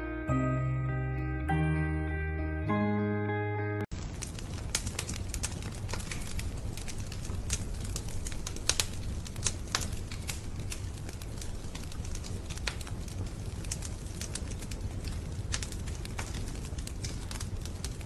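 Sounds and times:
wood fire crackling: 0:03.9 - 0:18.0.

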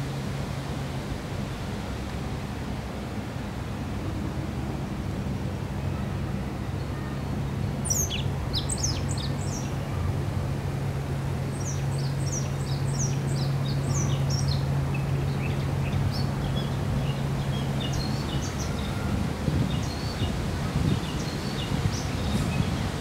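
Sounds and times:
wind or water rumble: 0:00.0 - 0:23.0
small birds chirping: 0:07.8 - 0:09.9, 0:11.5 - 0:23.0.

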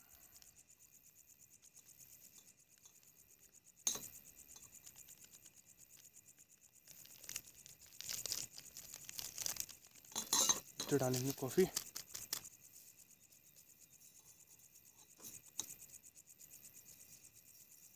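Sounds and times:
plastic packet crinkling: 0:06.8 - 0:10.2, 0:10.8 - 0:12.4.

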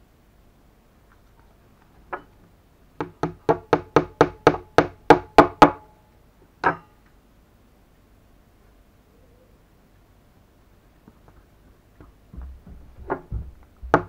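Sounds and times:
sharp knocks: 0:12.3 - 0:14.0.

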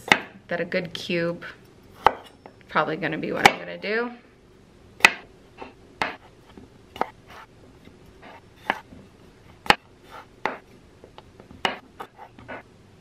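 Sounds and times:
knife slicing and scraping: 0:08.2 - 0:08.9.

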